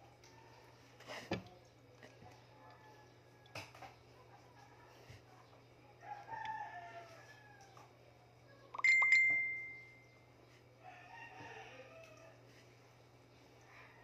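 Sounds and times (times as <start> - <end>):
rooster crowing: 6.0 - 7.9, 10.8 - 12.4.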